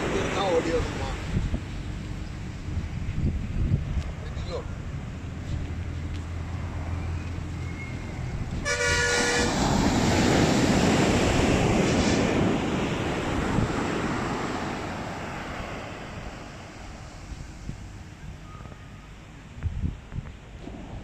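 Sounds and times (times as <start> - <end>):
loud rushing noise: 8.4 - 17.8
horn: 8.6 - 9.6.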